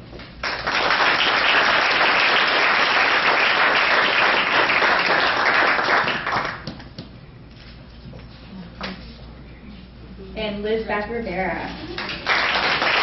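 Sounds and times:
audience applauding: 0:00.4 - 0:06.9, 0:12.0 - 0:13.0.

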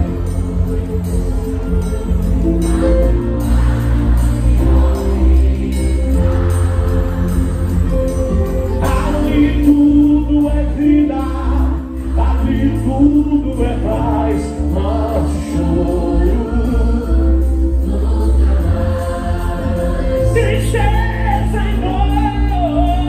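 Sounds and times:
live gospel band playing: 0:00.0 - 0:23.0
person singing: 0:08.7 - 0:18.9.

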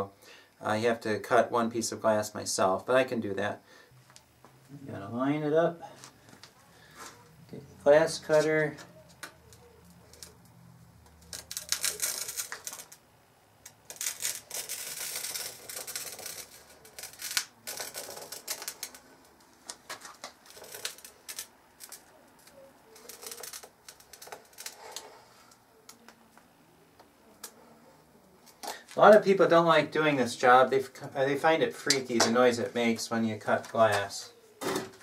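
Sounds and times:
glass cutter scoring glass: 0:11.1 - 0:13.0.

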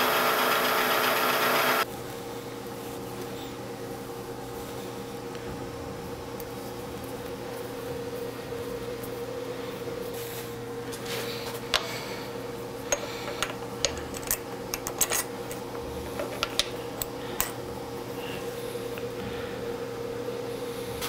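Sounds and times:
steady machine hum: 0:00.0 - 0:21.0.

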